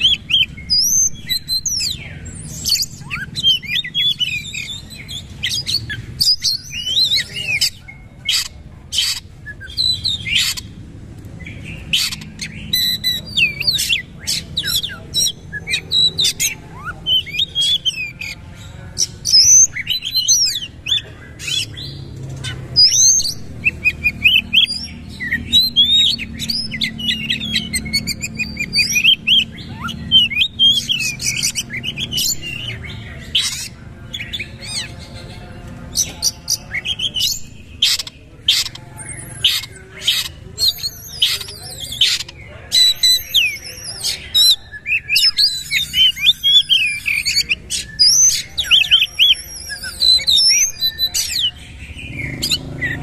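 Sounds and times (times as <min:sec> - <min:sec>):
bird singing whistled notes: 0:00.0 - 0:10.8, 0:36.0 - 0:53.0.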